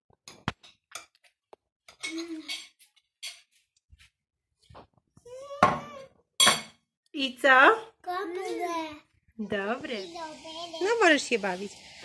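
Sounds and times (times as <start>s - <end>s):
child's voice: 8.0s - 9.2s, 10.0s - 11.0s.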